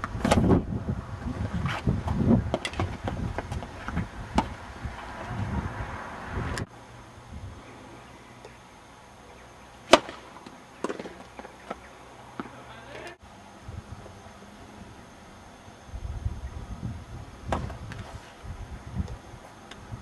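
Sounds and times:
tennis balls struck with racquets: 9.8s - 11.8s.

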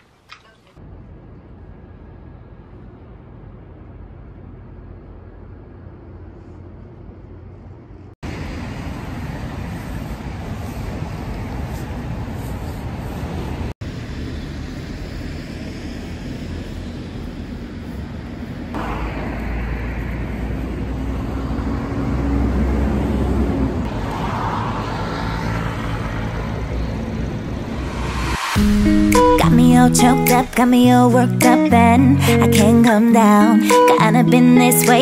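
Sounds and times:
passing cars: 8.2s - 32.4s.

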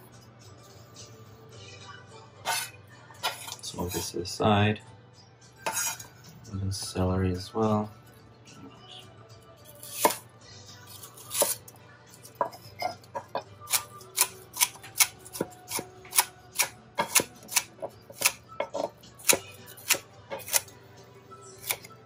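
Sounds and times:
knife chopping on wooden board: 12.4s - 20.6s.

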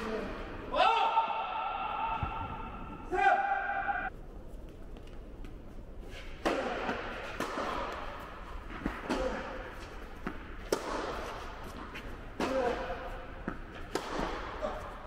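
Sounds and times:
tennis ball struck by racquets: 6.4s - 14.6s.

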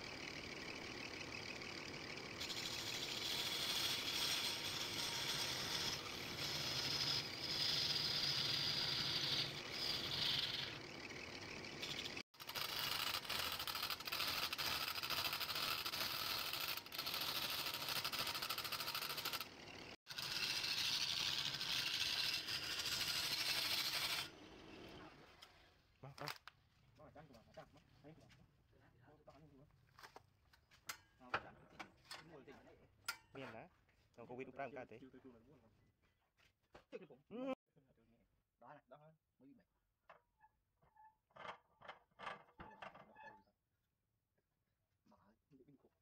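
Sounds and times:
wood lathe cutting with hissing: 0.3s - 25.1s.

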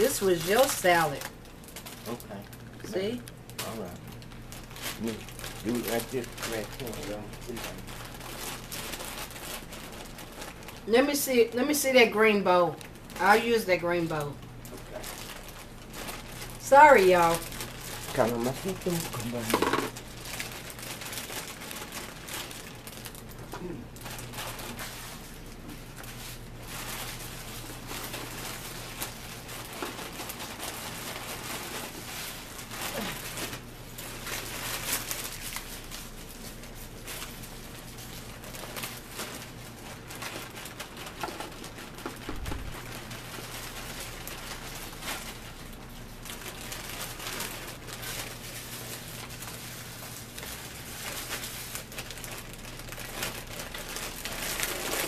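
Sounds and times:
low steady hum: 0.0s - 55.0s
plastic bag crinkling: 0.0s - 55.0s
lettuce falling into plastic bowl: 19.5s - 20.0s.

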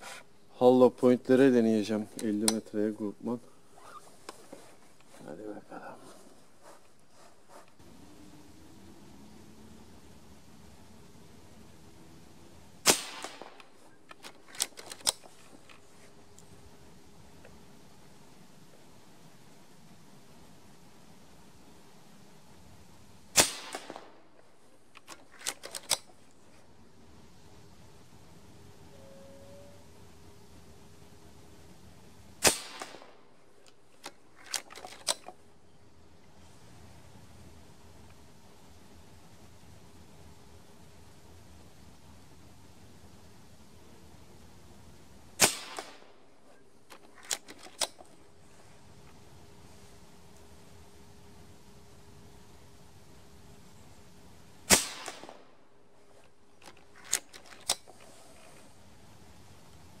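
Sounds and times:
cocking lever clicks: 2.1s - 2.7s, 13.2s - 15.8s, 24.9s - 26.1s, 33.6s - 35.4s, 46.9s - 48.2s, 56.6s - 58.0s
air rifle shot: 12.8s - 13.7s, 23.3s - 24.2s, 32.4s - 33.2s, 45.4s - 46.2s, 54.7s - 55.5s.

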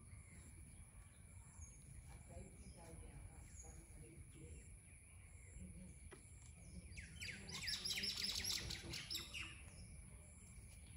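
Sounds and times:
bird chirping: 0.0s - 10.9s.

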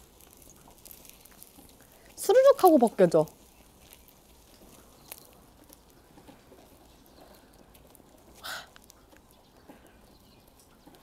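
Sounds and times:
gloved hands peeling skin: 0.0s - 9.6s.

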